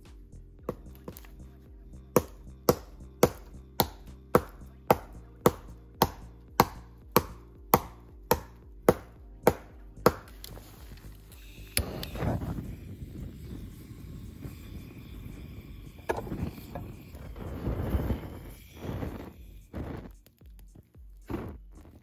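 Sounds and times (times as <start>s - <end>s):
tool chopping into wood: 2.1s - 10.6s.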